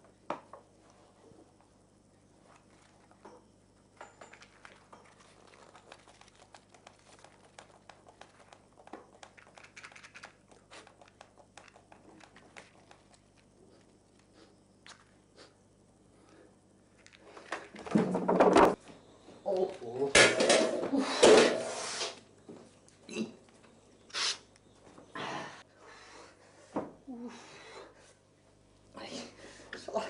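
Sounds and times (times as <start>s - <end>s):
rustling and crinkling: 4.3s - 15.3s.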